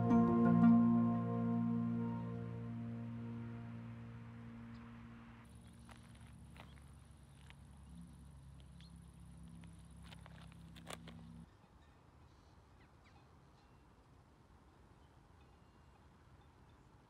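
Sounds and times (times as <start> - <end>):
low steady hum: 0.0 - 11.4.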